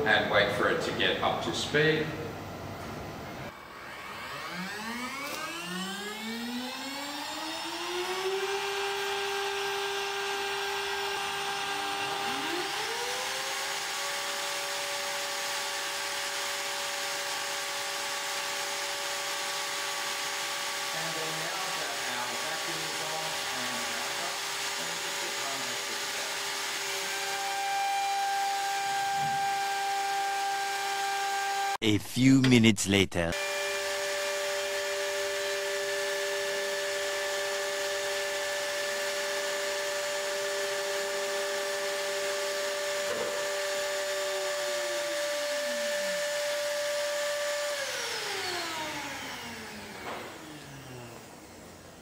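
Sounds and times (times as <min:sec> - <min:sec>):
second motor whine: 0:03.5 - 0:13.2
router spindle whine: 0:03.5 - 0:14.0.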